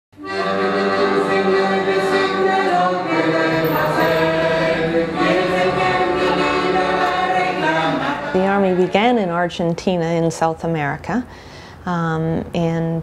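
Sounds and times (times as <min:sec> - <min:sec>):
choir singing sustained chords: 0:00.2 - 0:09.2.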